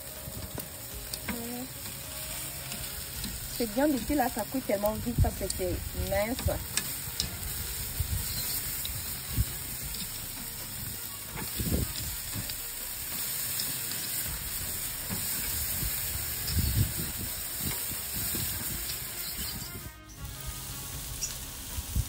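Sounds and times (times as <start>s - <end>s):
meat sizzling on a grill: 0.0s - 22.0s.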